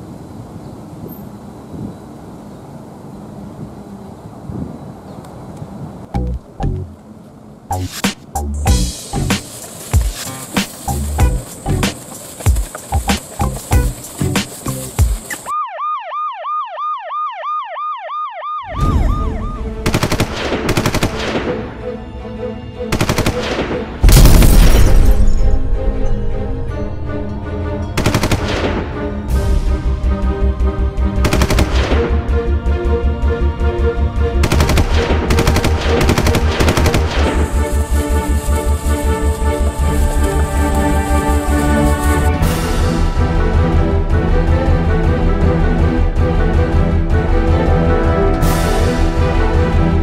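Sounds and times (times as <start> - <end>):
background music with bass beat: 6.2 - 6.9, 7.7 - 15.4
music: 6.2 - 6.9, 7.7 - 15.5, 18.8 - 50.0
electronic siren: 15.4 - 19.8
machine-gun fire effects: 19.8 - 21.6, 31.2 - 32.1, 34.4 - 37.4.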